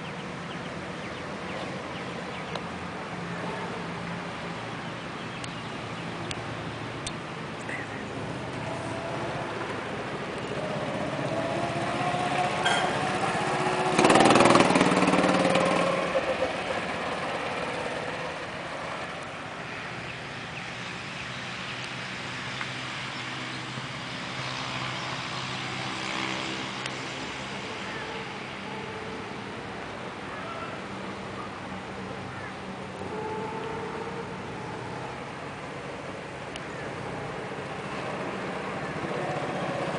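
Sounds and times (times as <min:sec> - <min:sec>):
go-kart engines: 0:00.0 - 0:39.9
go-kart passing by: 0:07.7 - 0:39.9.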